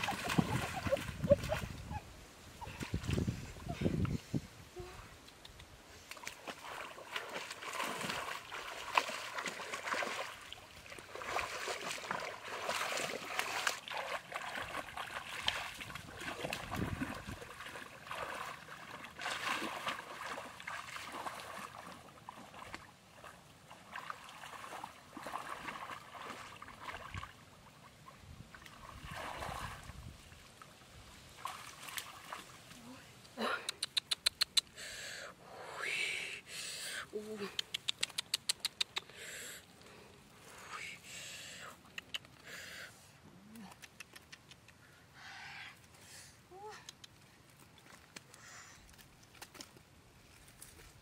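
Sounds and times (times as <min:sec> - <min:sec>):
pond water splashing: 0:00.0 - 0:03.8, 0:04.8 - 0:34.8.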